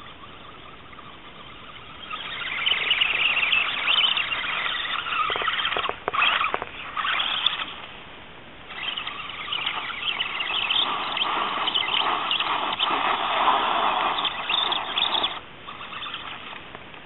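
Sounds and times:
toy car motor whining: 0:00.0 - 0:07.8, 0:08.7 - 0:16.6
sharp clicks: 0:02.7 - 0:07.8.

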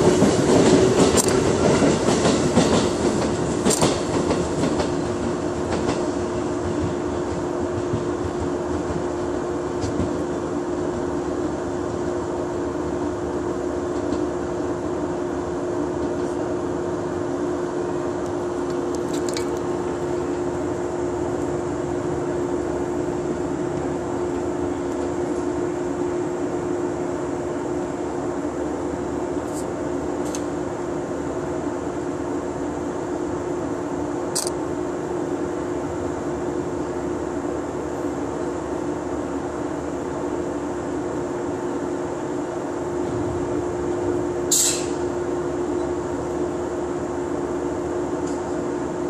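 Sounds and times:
train equipment humming: 0:00.0 - 0:49.0.

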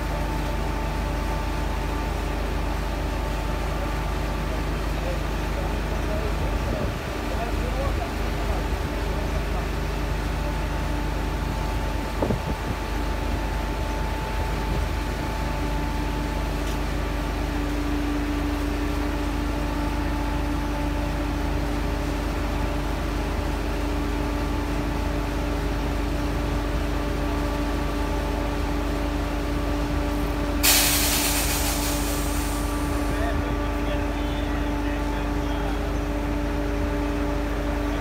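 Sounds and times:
heavy machinery engines humming: 0:00.0 - 0:38.0
compressed air hiss: 0:30.6 - 0:32.8.

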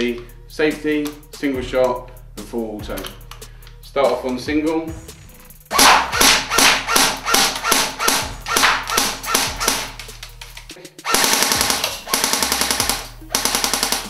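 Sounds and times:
airsoft gun firing: 0:05.7 - 0:10.0, 0:11.0 - 0:14.0.

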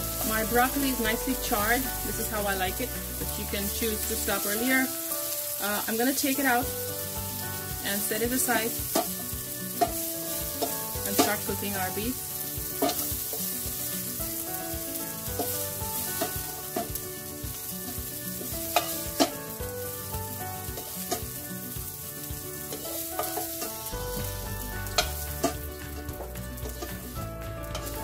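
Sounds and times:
broccoli sizzling in a wok: 0:00.0 - 0:28.0
soft background music: 0:00.0 - 0:28.0
spatula scraping a pan: 0:02.3 - 0:24.1, 0:24.8 - 0:28.0
low bass: 0:24.0 - 0:28.0.

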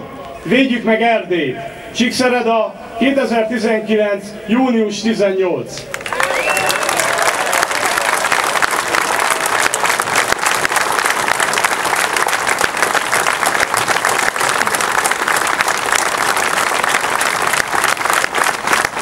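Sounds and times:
crowd applauding: 0:05.9 - 0:19.0.

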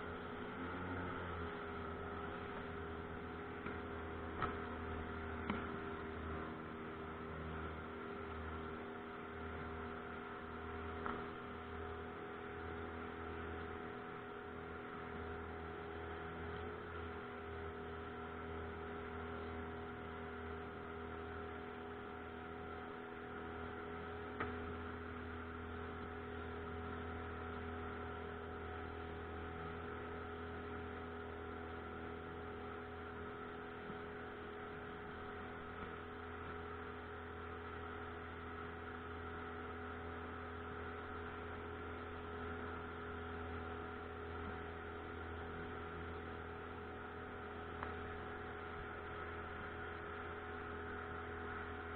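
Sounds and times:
outboard motor humming: 0:00.0 - 0:51.9.

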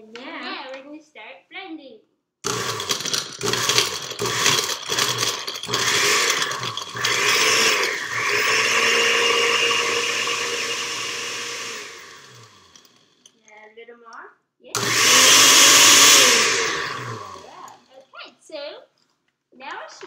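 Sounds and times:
blender whirring: 0:02.4 - 0:13.1, 0:14.8 - 0:17.8.

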